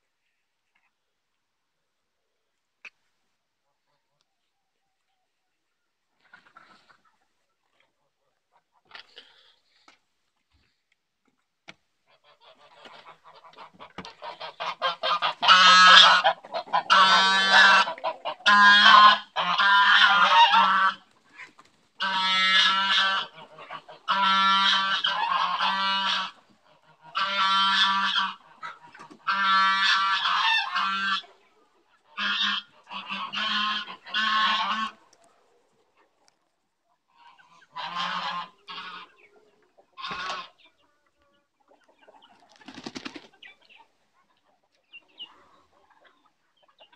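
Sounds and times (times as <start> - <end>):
geese honking: 12.1 - 35.2, 37.1 - 40.9.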